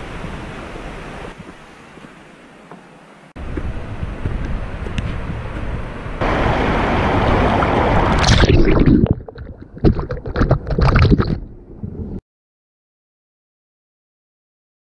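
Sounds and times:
wind buffeting microphone: 0:03.4 - 0:12.2.

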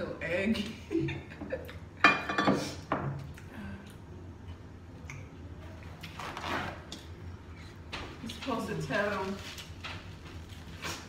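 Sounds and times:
paper towel rustling: 0:08.1 - 0:11.0.

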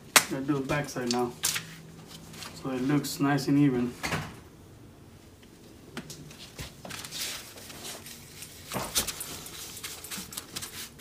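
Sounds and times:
paper towel rustling on leather: 0:06.3 - 0:11.0.

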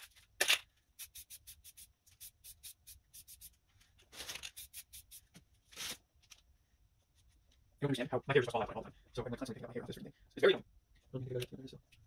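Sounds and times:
spray paint can hissing: 0:01.0 - 0:03.6, 0:04.5 - 0:05.3.

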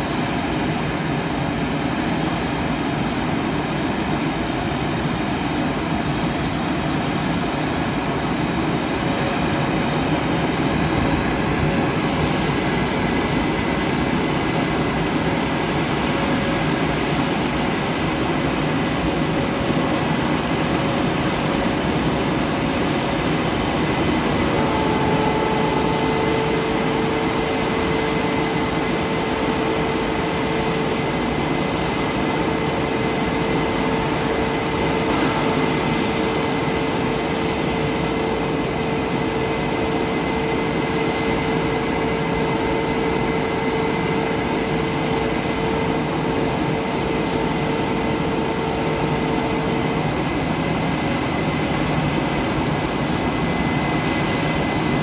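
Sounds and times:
high turbine whines: 0:00.0 - 0:55.0
jet engines idling: 0:00.0 - 0:55.0.

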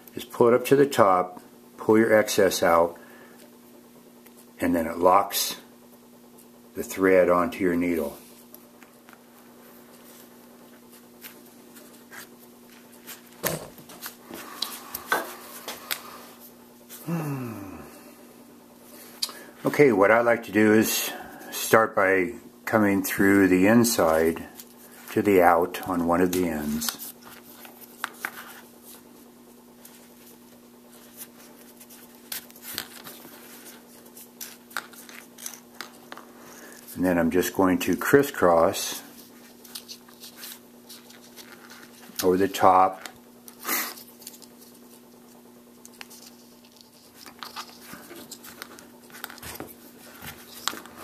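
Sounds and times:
faint steady hum: 0:00.0 - 0:51.0.

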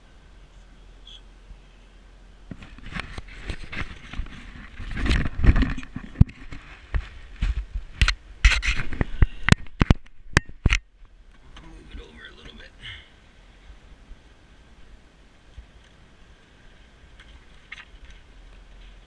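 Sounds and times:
cloth rubbing on microphone: 0:02.6 - 0:07.9.

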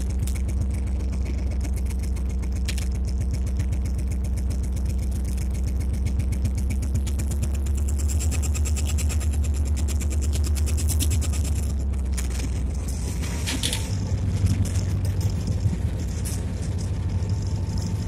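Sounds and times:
diesel locomotive engine throbbing: 0:00.0 - 0:18.0.

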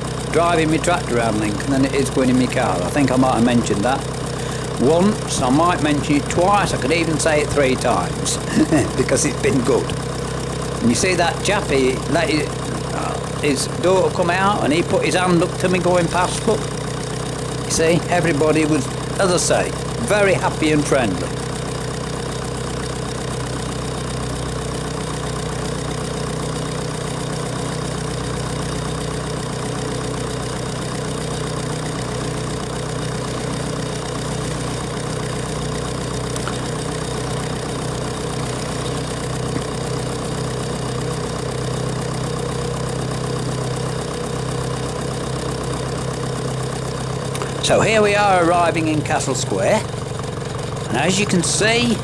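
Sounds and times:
tractor engine running: 0:00.0 - 0:52.0.

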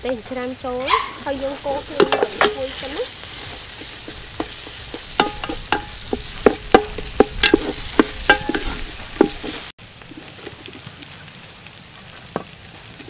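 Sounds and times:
paste sizzling in hot oil: 0:00.2 - 0:13.0
wooden spoon knocking pot: 0:01.2 - 0:09.7.

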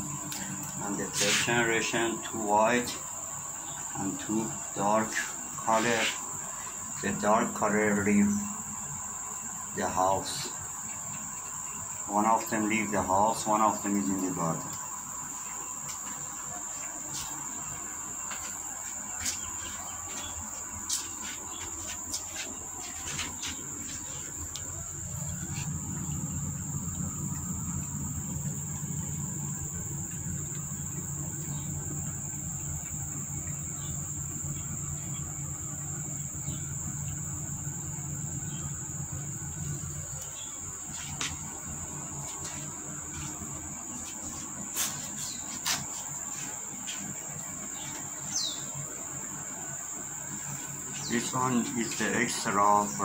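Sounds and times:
low hum: 0:00.0 - 0:44.6
high-pitched insect drone: 0:00.0 - 0:53.0.

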